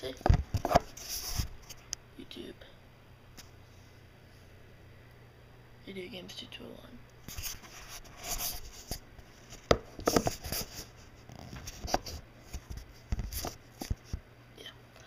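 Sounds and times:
camera handling knocks and rubbing: 0.2 - 1.0, 9.6 - 10.7.

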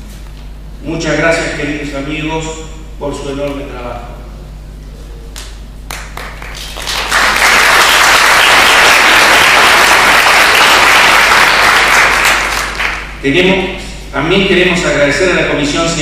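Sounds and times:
audience applause: 5.9 - 13.1.

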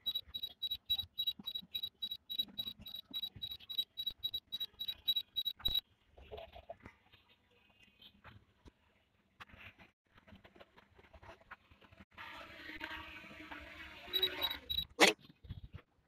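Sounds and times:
rapid electronic warning beeps: 0.0 - 5.8, 14.1 - 15.0.

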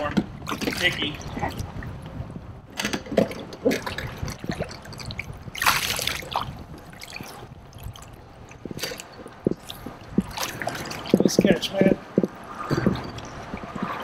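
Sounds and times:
water splashing and dripping: 0.0 - 2.2, 3.0 - 14.0.

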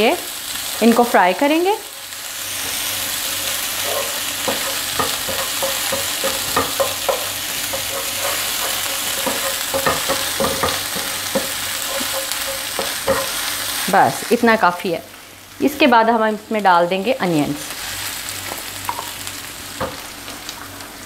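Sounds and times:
spices sizzling in hot oil: 0.0 - 21.0
spatula scraping and knocking pan: 2.6 - 13.8.

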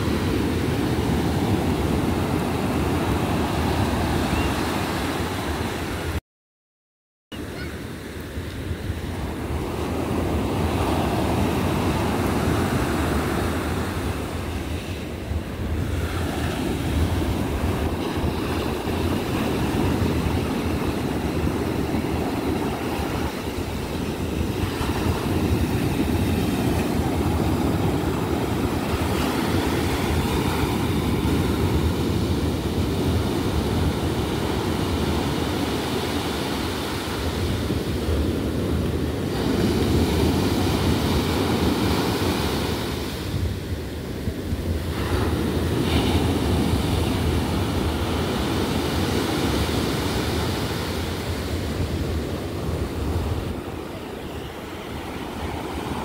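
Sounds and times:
wind buffeting microphone: 8.3 - 56.0
surf breaking on beach: 15.7 - 43.6.

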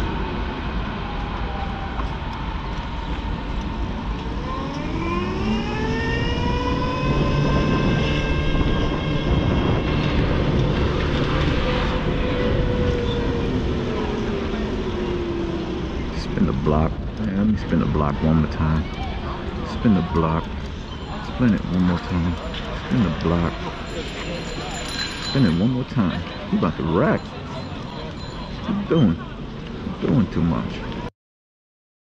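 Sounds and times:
vehicle motor whine: 0.0 - 24.0
traffic noise: 0.0 - 31.1.

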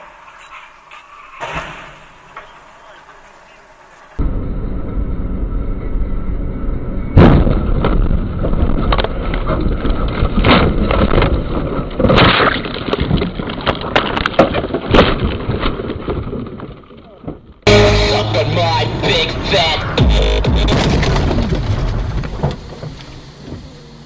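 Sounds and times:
road and engine noise: 0.0 - 12.0, 17.7 - 24.0
car crash impact: 1.3 - 2.5, 7.1 - 9.6, 20.0 - 23.2
bangs and crunches: 7.2 - 17.8, 20.0 - 23.0.

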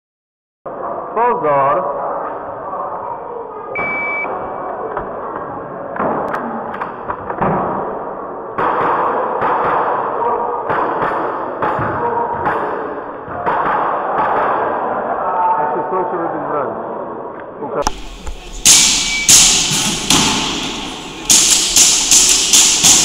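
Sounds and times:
airsoft pistol shots: 17.9 - 23.0.

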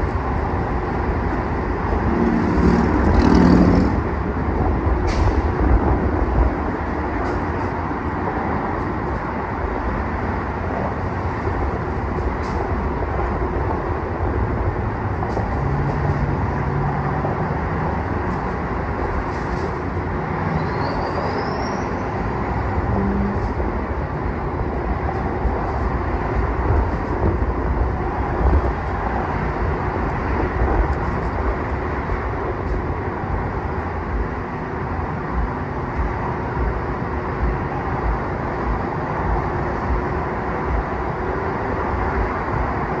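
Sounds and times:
freeway traffic rushing: 0.0 - 43.0.

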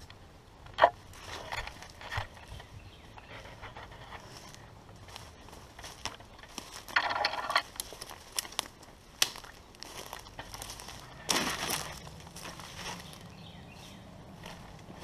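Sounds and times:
twigs cracking: 0.0 - 13.4
footsteps crunching dry leaves: 3.4 - 7.0, 7.6 - 15.0.

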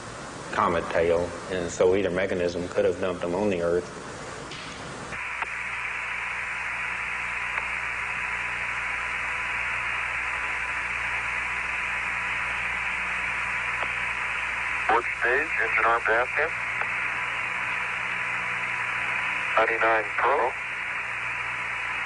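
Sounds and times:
radio static hiss: 0.0 - 3.8, 5.0 - 22.0
low hum: 5.2 - 22.0.

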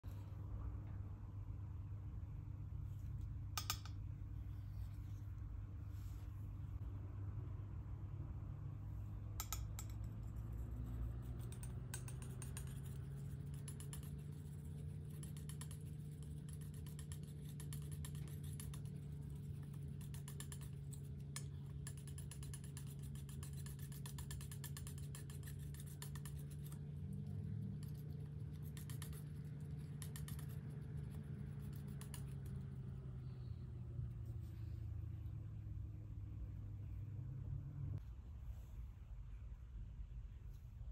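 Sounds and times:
steady low hum: 0.0 - 40.9
palette knife scraping paint: 9.8 - 33.6.

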